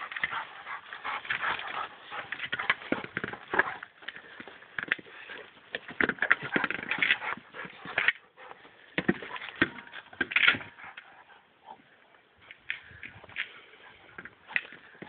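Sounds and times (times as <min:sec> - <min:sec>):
plastic ball scuffing and knocking: 0:01.2 - 0:08.2.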